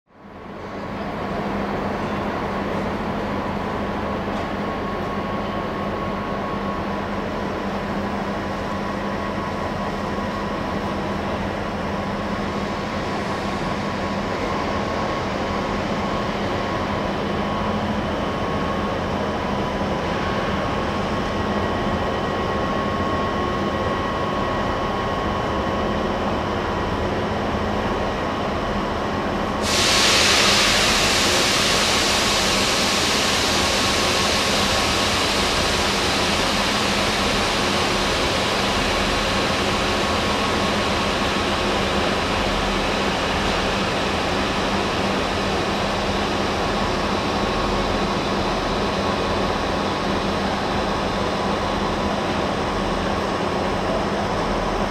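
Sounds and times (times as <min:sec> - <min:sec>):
trains humming: 0:29.2 - 0:52.2
loud hiss: 0:29.6 - 0:46.8.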